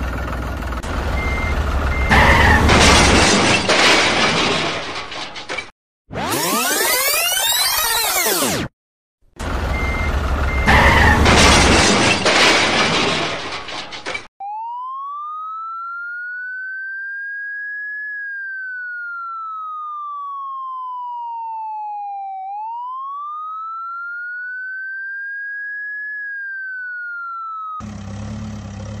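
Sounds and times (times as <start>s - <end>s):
siren wailing: 1.1s - 3.7s, 6.1s - 8.7s, 9.7s - 12.5s, 14.4s - 27.9s
loud crash: 1.9s - 5.7s, 10.5s - 14.3s.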